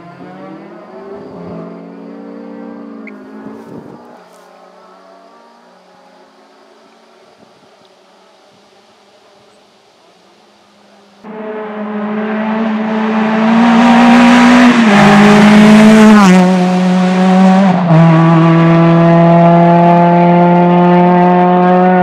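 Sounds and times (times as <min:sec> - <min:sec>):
rally car engine revving: 0:11.2 - 0:22.0.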